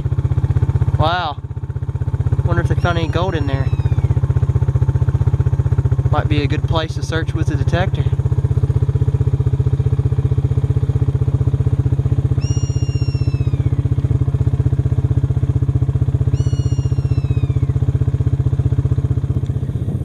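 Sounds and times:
pulsing engine drone: 0:00.0 - 0:20.0
bird of prey screaming: 0:02.5 - 0:04.3, 0:12.4 - 0:13.9, 0:16.2 - 0:17.9.

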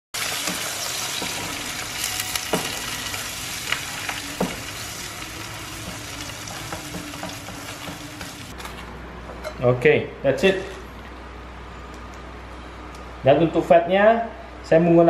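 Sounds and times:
eggs sizzling in a frying pan: 0:00.2 - 0:08.5.

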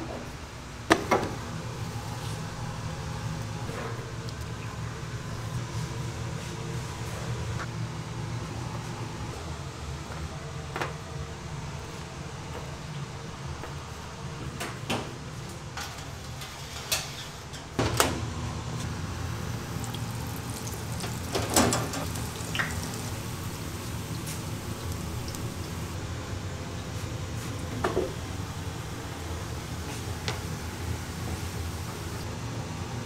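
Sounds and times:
dough sizzling in deep fryer oil: 0:18.9 - 0:26.0.

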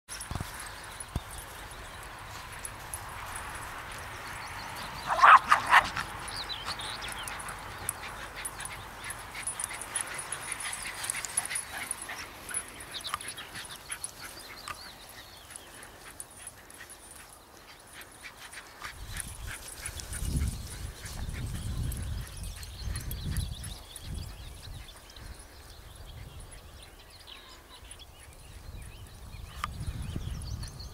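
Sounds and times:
dogs barking: 0:04.8 - 0:14.8.

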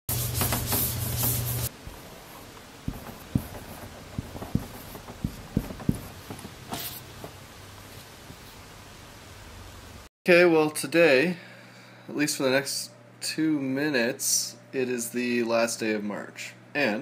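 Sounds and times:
marker scratching stroke: 0:00.1 - 0:06.2
cloth wiping whiteboard: 0:00.1 - 0:07.3
marker tapping on whiteboard: 0:02.8 - 0:06.5.

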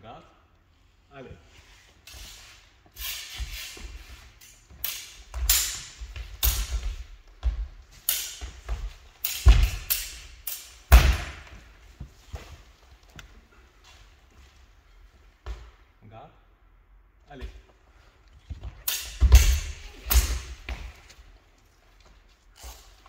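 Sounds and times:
sword blades hitting and swishing: 0:03.0 - 0:06.9, 0:08.0 - 0:11.5, 0:18.8 - 0:21.0
footwork thudding on wooden floor: 0:04.7 - 0:09.9, 0:10.9 - 0:13.2, 0:18.4 - 0:21.5.

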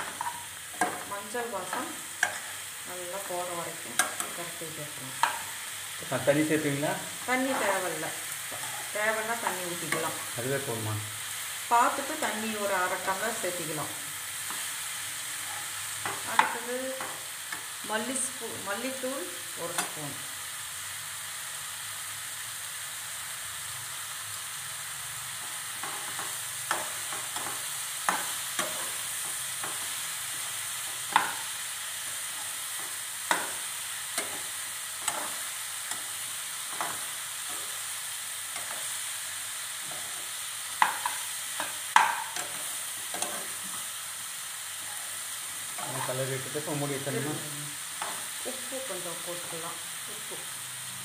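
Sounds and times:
spoon scraping and tapping pan: 0:00.0 - 0:01.1, 0:01.7 - 0:02.6, 0:03.9 - 0:04.4, 0:05.2 - 0:05.5, 0:30.8 - 0:31.5, 0:34.2 - 0:36.1, 0:40.8 - 0:43.6
mushrooms sizzling in a pan: 0:00.0 - 0:51.0.

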